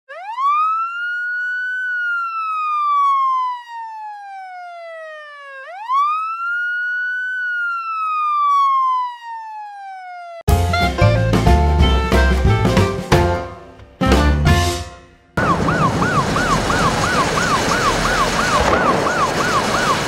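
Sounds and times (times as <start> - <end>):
emergency vehicle siren wailing: 0.1 - 10.5, 15.4 - 20.0.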